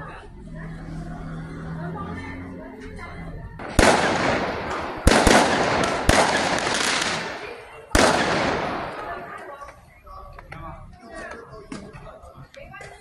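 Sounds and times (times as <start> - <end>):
firecrackers banging: 3.6 - 10.5.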